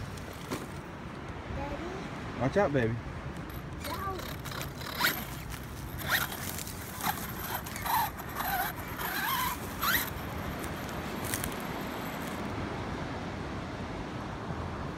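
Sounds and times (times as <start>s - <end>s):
wind: 0.0s - 14.9s
electric motor whining: 3.5s - 12.4s.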